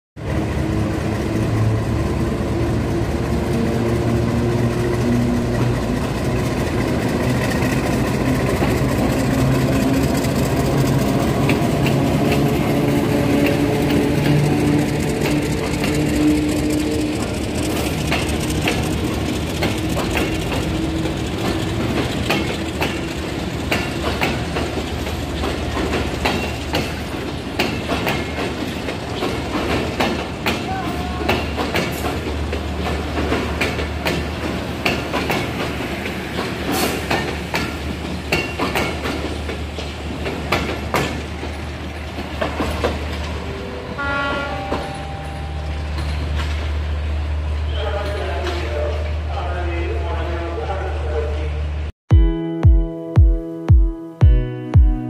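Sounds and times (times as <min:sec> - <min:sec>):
wheels clicking over rail joints: 0:00.2 - 0:43.6
train rumble: 0:00.2 - 0:51.9.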